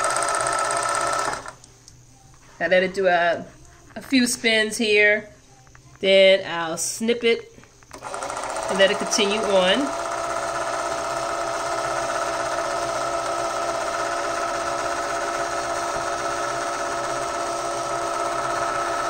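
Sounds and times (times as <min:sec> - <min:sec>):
sewing machine motor whining: 0:00.0 - 0:01.6, 0:07.9 - 0:19.0.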